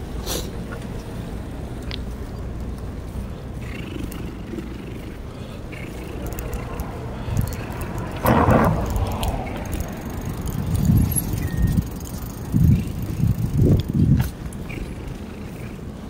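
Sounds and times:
bicycle rumbling on pavement: 0.8 - 16.0
rough rushing noise: 3.6 - 14.4.

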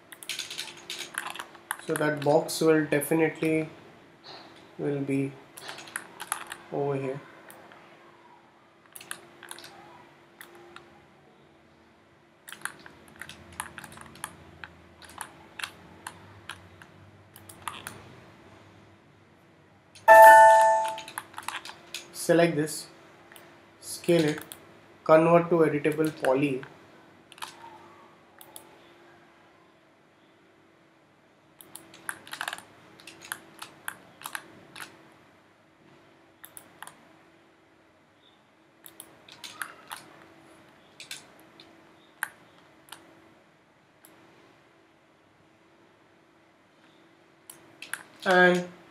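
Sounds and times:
keyboard and mouse clicks: 0.1 - 2.3, 5.6 - 6.7, 8.9 - 9.8, 12.5 - 18.0, 20.0 - 22.1, 24.1 - 24.6, 25.9 - 26.3, 27.3 - 27.8, 28.4 - 28.7, 31.6 - 35.0, 36.4 - 37.0, 38.8 - 40.3, 40.9 - 43.1, 47.5 - 48.7
loud multi-tone sound: 20.1 - 21.2.

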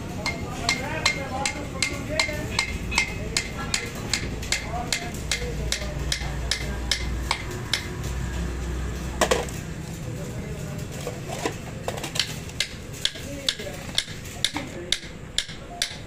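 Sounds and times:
hammer tapping metal: 0.2 - 8.2, 12.2 - 16.0.

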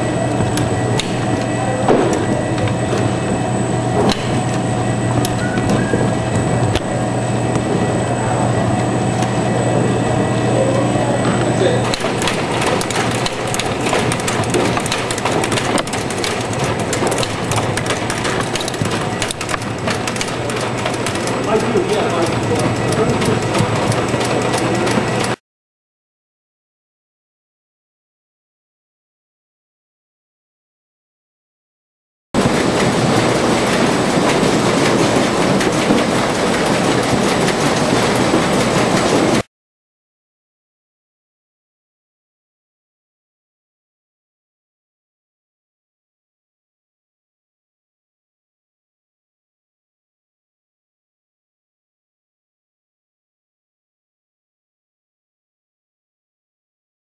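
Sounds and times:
machine humming: 0.0 - 25.4, 32.4 - 39.5.

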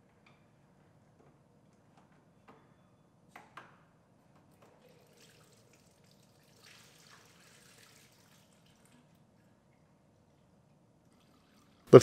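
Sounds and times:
coolant splashing into drain pan: 4.8 - 9.1.

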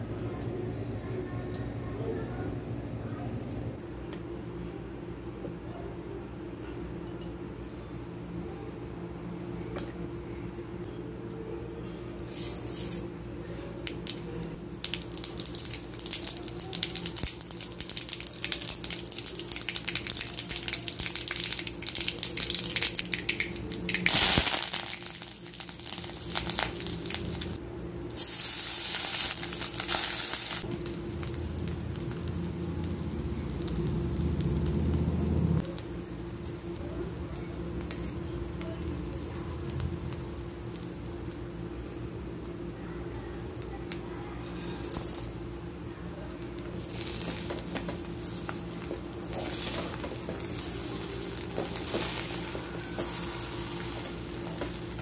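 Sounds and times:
steady low hum: 0.0 - 55.0
seeds crackling in hot oil: 12.2 - 55.0.

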